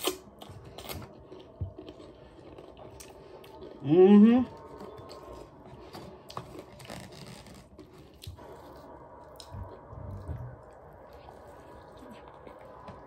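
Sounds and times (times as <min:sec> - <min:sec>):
chewing mouth sounds: 0:00.0 - 0:03.8
crackles of bread roll handled: 0:04.7 - 0:08.8.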